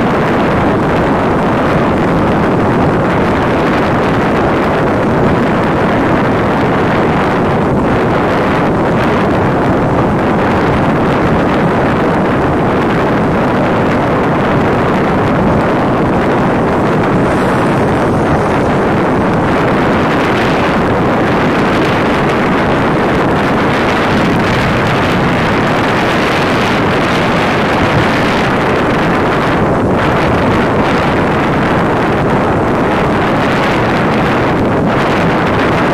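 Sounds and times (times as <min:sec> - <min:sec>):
wind buffeting microphone: 0:00.0 - 0:35.9
tractor engine running: 0:12.6 - 0:33.1.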